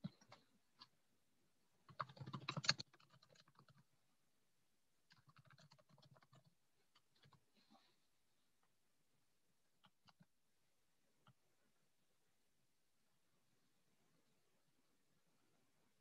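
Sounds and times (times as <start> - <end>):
faint keyboard typing: 0.0 - 1.0, 1.8 - 4.0, 5.0 - 7.9, 9.7 - 10.4, 11.1 - 11.8.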